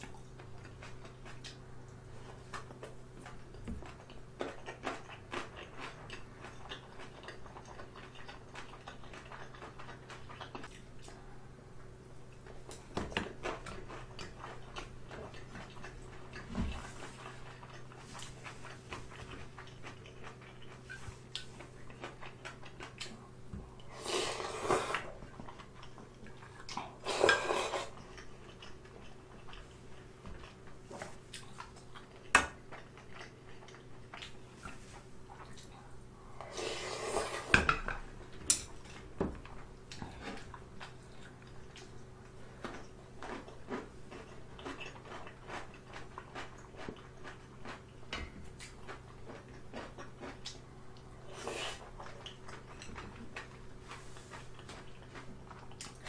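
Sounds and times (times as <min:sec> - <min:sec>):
noodle slurping: 0:23.8 - 0:25.2, 0:26.9 - 0:28.0, 0:36.4 - 0:37.5.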